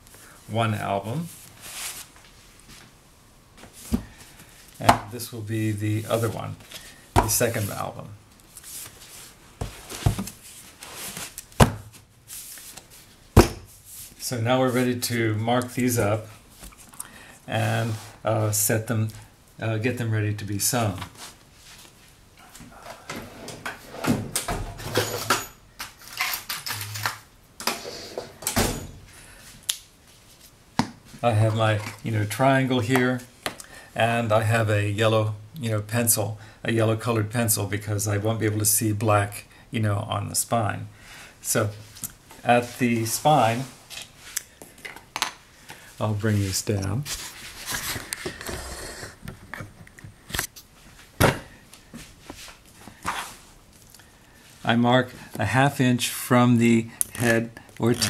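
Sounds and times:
rustling: 1.2s - 3.0s, 5.8s - 15.3s.

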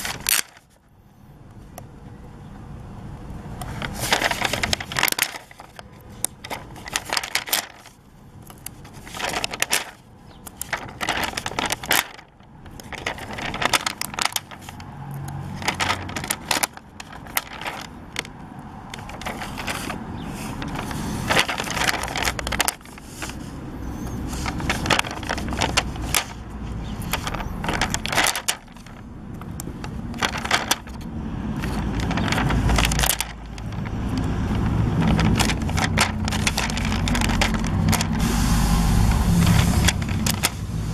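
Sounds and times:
stickers peeling and crinkling: 0.0s - 0.8s, 3.6s - 40.9s
hand rubbing over paper: 10.6s - 12.2s, 19.0s - 29.0s, 31.7s - 40.9s.

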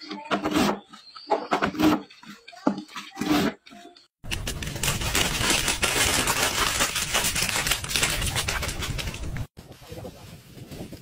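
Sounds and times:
paper bag crinkling: 4.2s - 9.5s.

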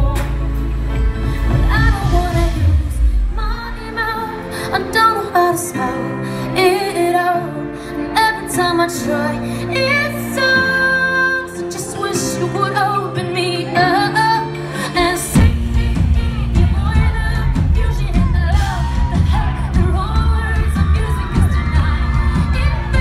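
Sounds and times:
band with drums: 0.0s - 3.6s, 15.3s - 23.0s
keyboard chords: 0.0s - 23.0s
woman singing pop ballad: 0.0s - 23.0s.

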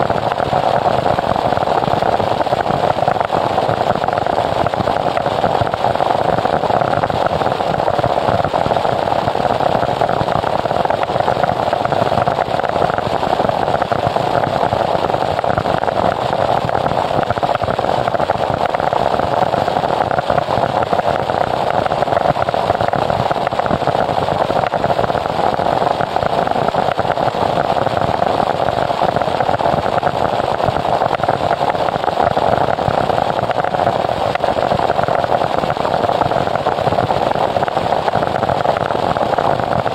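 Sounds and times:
harsh static noise wall: 0.0s - 39.9s.

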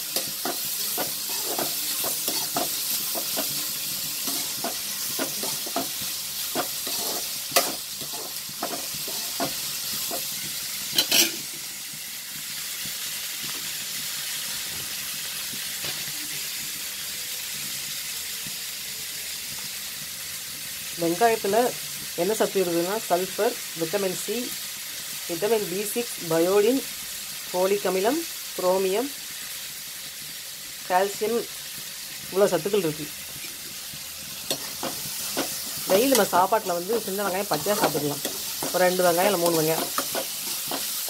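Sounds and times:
onions sizzling in hot oil: 0.0s - 41.0s
metal ladle scraping a pan: 0.1s - 10.3s, 10.9s - 11.5s.

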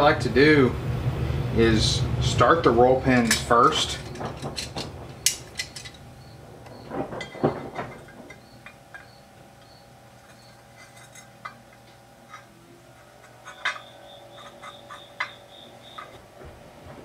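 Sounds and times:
faint steady hum: 0.0s - 17.0s
pliers clicking and clinking on metal: 3.2s - 6.0s, 7.2s - 16.2s.

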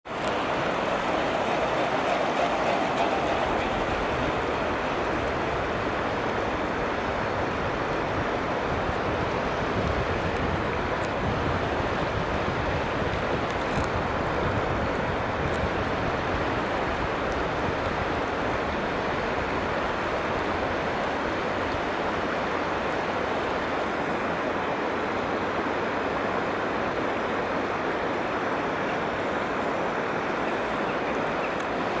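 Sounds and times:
wind rumble on microphone: 0.1s - 24.3s
river rushing over stones: 0.1s - 32.0s.

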